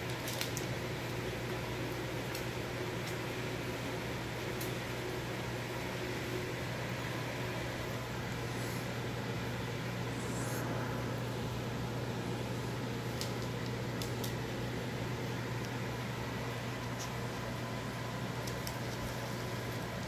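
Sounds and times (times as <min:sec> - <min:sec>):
low machine hum: 0:00.0 - 0:20.0
even hiss: 0:04.1 - 0:20.0.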